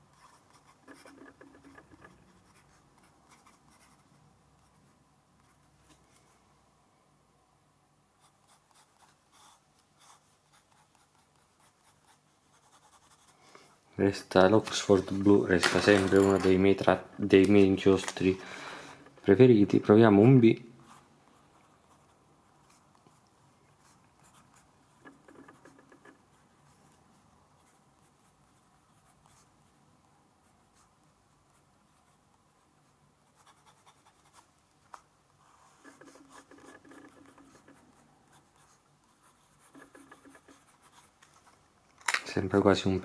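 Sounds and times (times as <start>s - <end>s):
fountain pen scratching on paper: 0.1s - 4.8s, 8.2s - 13.3s, 23.8s - 27.0s, 31.5s - 41.2s.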